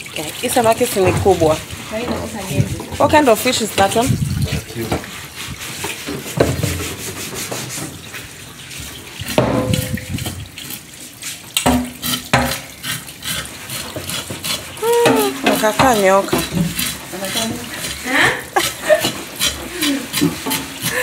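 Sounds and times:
tap water running into sink: 0.0 - 21.0
knocks: 11.6 - 12.6
knife scraping fish: 12.0 - 21.0.

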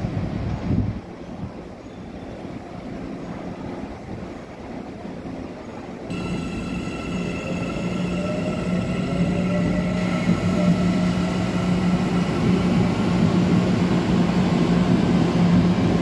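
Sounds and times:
low rumble with wind: 0.0 - 6.2
train hum with electrical whines: 0.0 - 16.0
electric train motor whine: 6.1 - 15.9.

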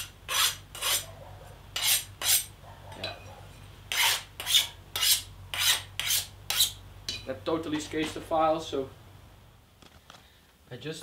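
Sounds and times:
file rasping across steel blade: 0.0 - 1.1, 1.8 - 2.5, 3.9 - 6.8.

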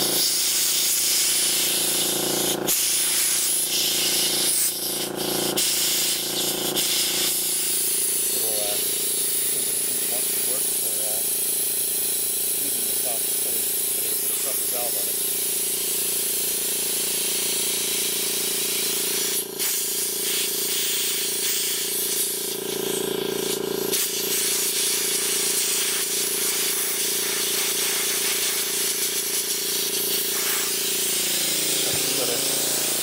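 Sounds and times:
compressor humming: 0.0 - 19.6, 28.2 - 33.0
compressed air hissing: 0.0 - 23.0, 23.9 - 33.0.

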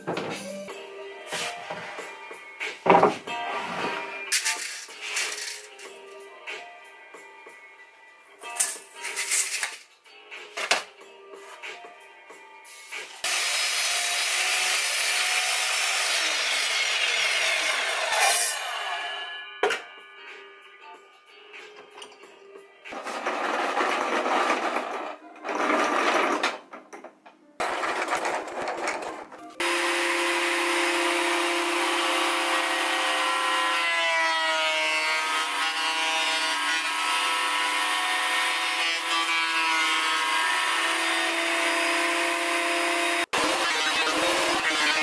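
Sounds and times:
power tool noise: 13.2 - 18.8, 29.6 - 45.0
thickness planer running: 29.6 - 33.0.

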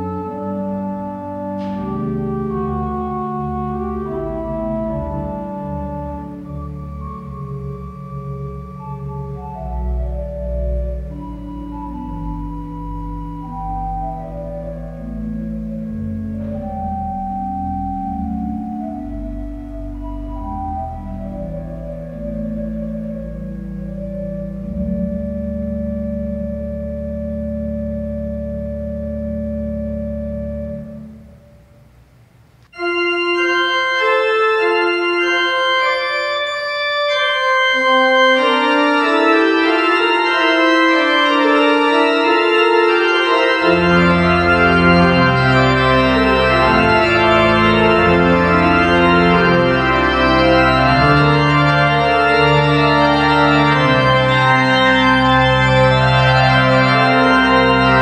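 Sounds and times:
church organ playing: 0.0 - 32.0, 32.6 - 58.0.

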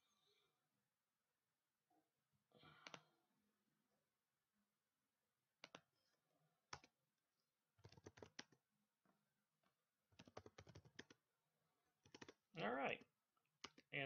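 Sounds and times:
keyboard typing: 2.8 - 3.1, 5.6 - 5.9, 6.7 - 7.0, 7.8 - 8.6, 10.2 - 11.2, 12.0 - 14.0.

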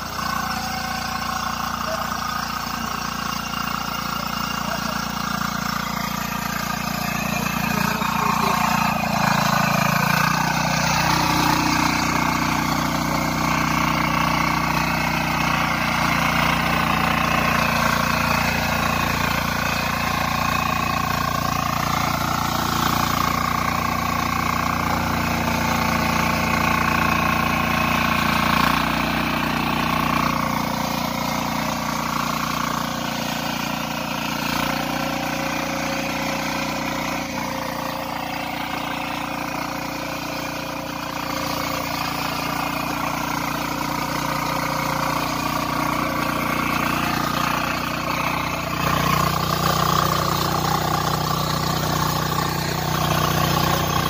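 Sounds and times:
diesel engine running under load: 0.0 - 54.0
tines churning soil: 0.0 - 54.0.

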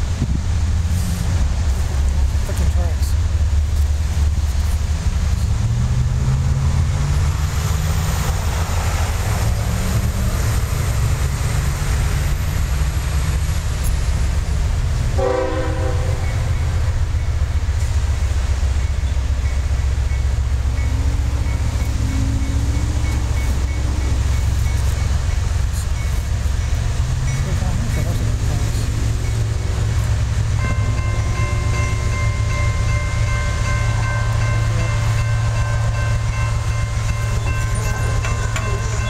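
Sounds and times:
diesel locomotive rumble: 0.0 - 39.0
train horn blast: 15.1 - 16.5.

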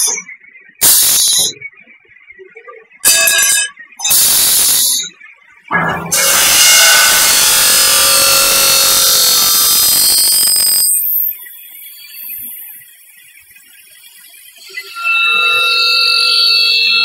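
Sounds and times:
circular saw cutting metal: 3.1 - 12.7, 14.6 - 17.0
machine hum: 5.7 - 11.3.

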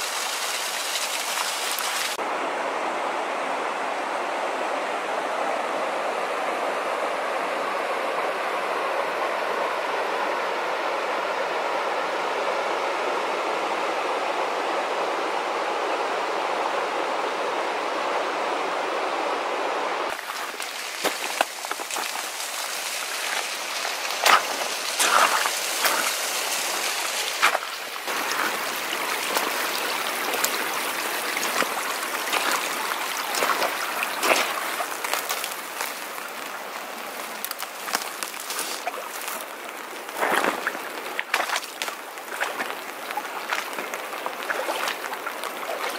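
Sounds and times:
creek flowing over rocks: 0.0 - 13.8, 18.1 - 45.9
footsteps on gravel and wet rock: 20.1 - 45.9.

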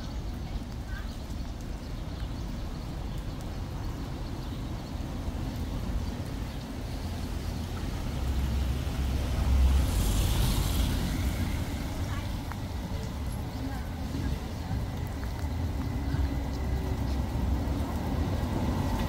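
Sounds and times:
vehicle passing by: 7.9 - 12.5.

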